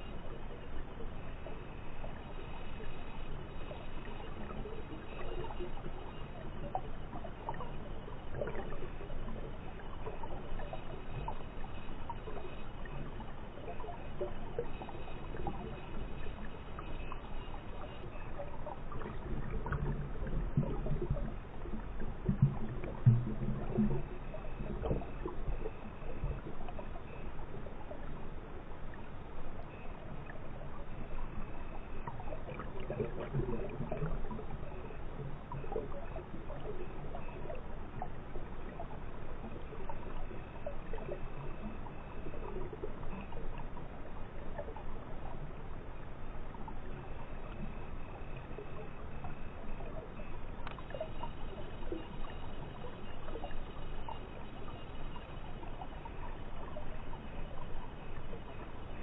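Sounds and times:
water bubbling underwater: 0.0 - 59.0
small pops and ticks: 50.6 - 52.4.

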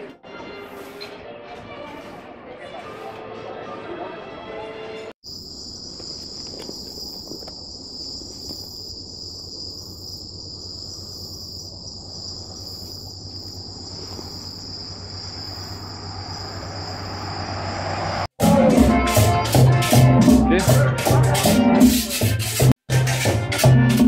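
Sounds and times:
crickets trilling: 5.2 - 18.3
pulsing insect call: 5.2 - 18.3.

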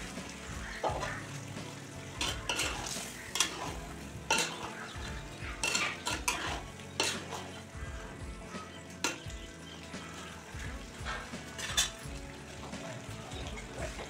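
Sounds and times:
gravy sizzling: 0.0 - 14.0
spatula scraping earthenware pot: 2.1 - 7.8, 11.1 - 12.1.

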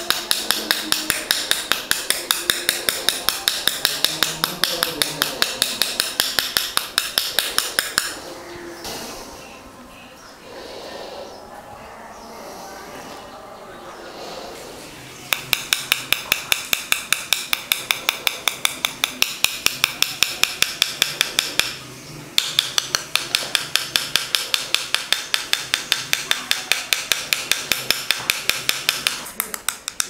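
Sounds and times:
palette knife tapping brush: 0.0 - 8.2, 15.3 - 21.8, 22.4 - 30.0.

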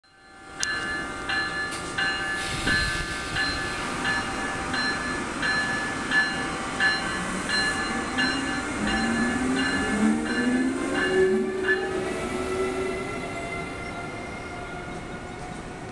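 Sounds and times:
locomotive bell ringing: 0.0 - 12.3.

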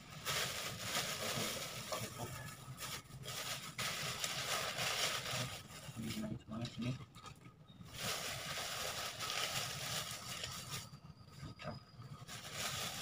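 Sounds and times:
paper wrapping rustling: 0.0 - 6.3, 7.9 - 10.9, 12.2 - 13.0.

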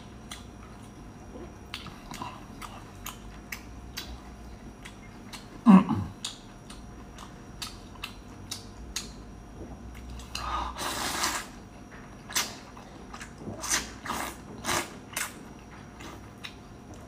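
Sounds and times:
chewing and lip smacks: 0.2 - 10.6.

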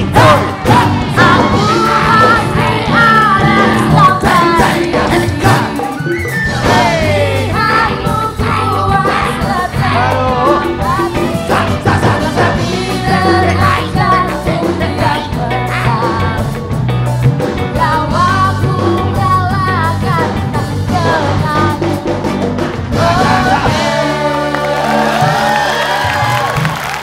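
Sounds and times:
person singing: 0.0 - 16.6
live band playing pop song: 0.0 - 27.0.

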